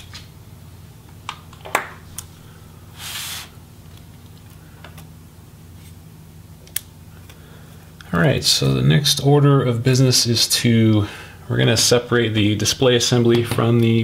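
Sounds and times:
brief scraping hiss: 0:03.0 - 0:03.5.

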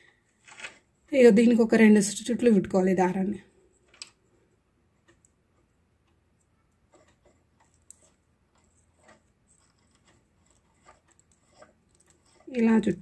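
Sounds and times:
faint clicks of plastic bobbin: 0:03.8 - 0:04.2.

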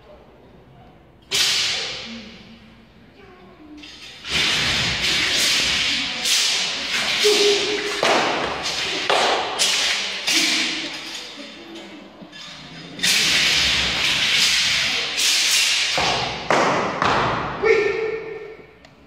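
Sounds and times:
sword swishes: 0:04.2 - 0:11.3, 0:13.0 - 0:16.4.

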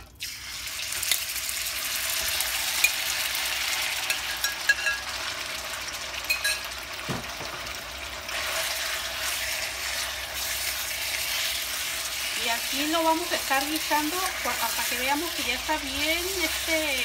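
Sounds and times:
chicken sizzling in hot oil: 0:00.0 - 0:17.0
spatula stirring chicken: 0:08.3 - 0:17.0.

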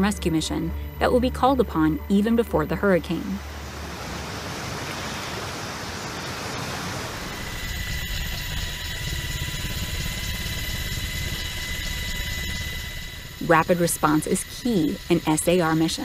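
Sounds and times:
helicopter rotor beat: 0:00.0 - 0:16.0
turbine whine: 0:00.0 - 0:16.0
floodwater rushing: 0:03.4 - 0:08.3.

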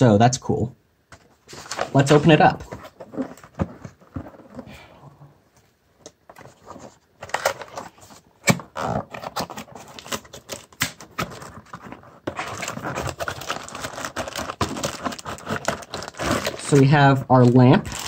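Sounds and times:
plastic bag crinkling: 0:08.7 - 0:18.0.

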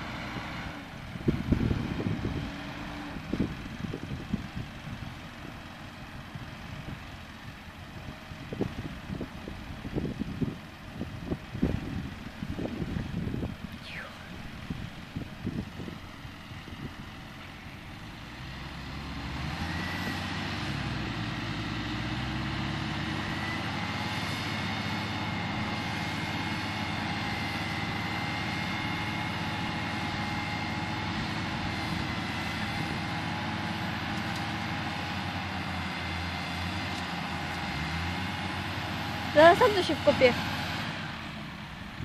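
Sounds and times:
tractor diesel engines revving: 0:00.0 - 0:42.0
steady high whine: 0:13.6 - 0:16.3.

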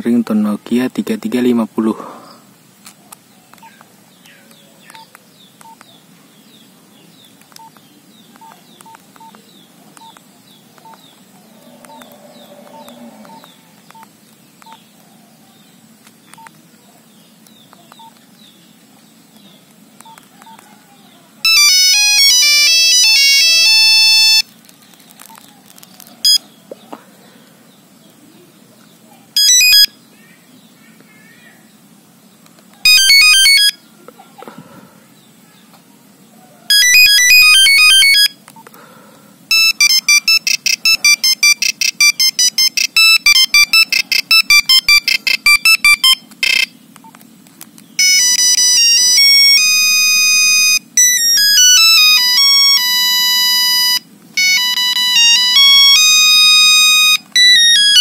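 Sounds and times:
faint high chirping: 0:02.3 - 0:31.8, 0:39.5 - 0:47.2
beeping ringtone melody: 0:21.4 - 0:24.4, 0:26.2 - 0:26.4, 0:29.4 - 0:30.0, 0:32.8 - 0:33.8, 0:36.7 - 0:38.4, 0:39.5 - 0:46.7, 0:48.0 - 0:58.0
soft key beeps: 0:39.5 - 0:47.2.

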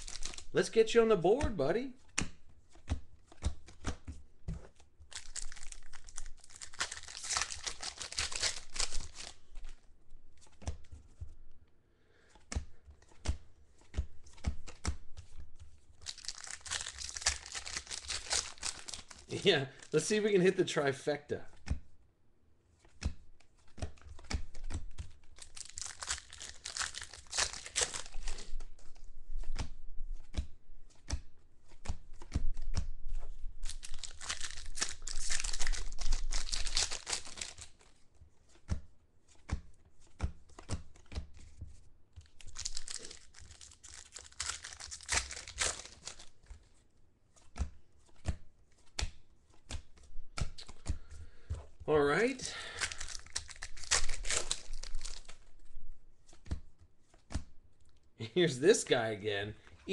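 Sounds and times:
foil wrappers tearing and crinkling: 0:00.0 - 0:00.9, 0:05.1 - 0:09.4, 0:16.0 - 0:20.2, 0:25.4 - 0:28.5, 0:33.6 - 0:37.9, 0:42.3 - 0:46.4, 0:52.6 - 0:55.4
cards clicking and snapping: 0:00.0 - 0:09.8, 0:10.4 - 0:11.3, 0:12.2 - 0:20.0, 0:22.8 - 0:46.7, 0:47.4 - 0:51.6, 0:52.6 - 0:55.5, 0:56.3 - 0:58.0.

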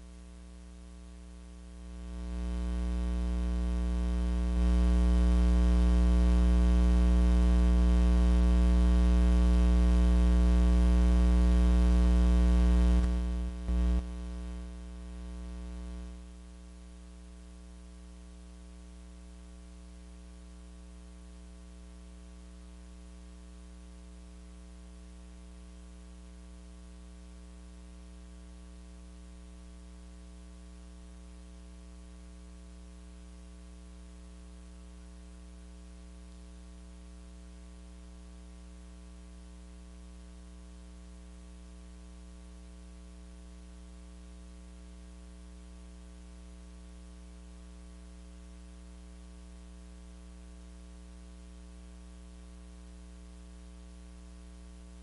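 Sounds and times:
electrical mains hum: 0:00.0 - 0:16.5.

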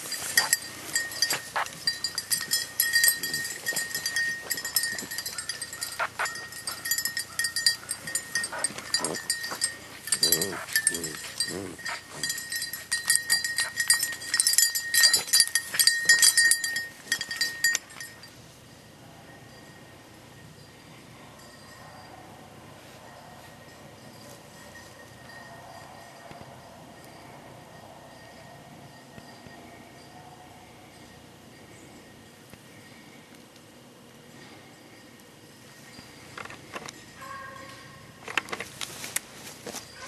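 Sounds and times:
high ringing and jingling: 0:00.0 - 0:33.3, 0:34.3 - 0:38.2, 0:39.0 - 0:40.0
dogs yelping and baying: 0:00.4 - 0:16.4.

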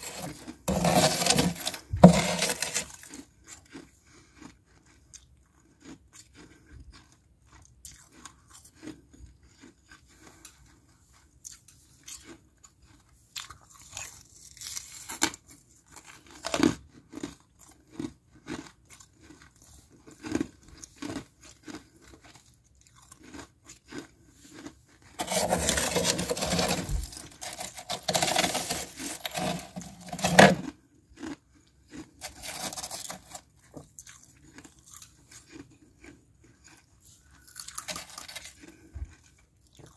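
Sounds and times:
frost being crunched and chewed: 0:11.3 - 0:39.9.

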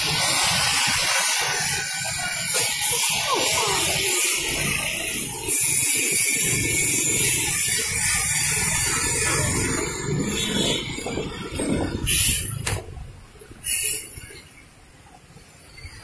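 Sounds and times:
road rumble: 0:00.0 - 0:16.0
wind rushing over microphone: 0:04.5 - 0:13.6.

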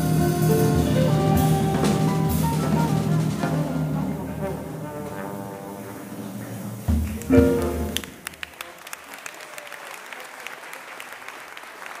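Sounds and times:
jazz band final chord: 0:00.0 - 0:08.4
audience applauding: 0:07.0 - 0:12.0.

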